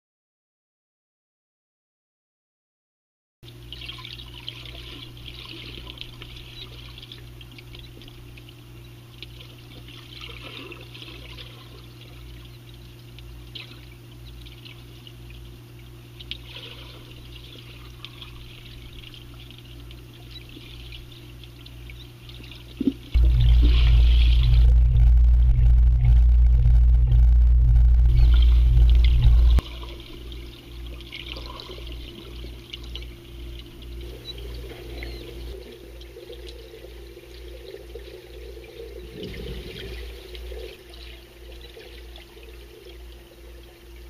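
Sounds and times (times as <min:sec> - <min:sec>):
low hum: 0:03.5 - 0:44.0
bubbles fizzing underwater: 0:16.3 - 0:26.6, 0:27.9 - 0:44.0.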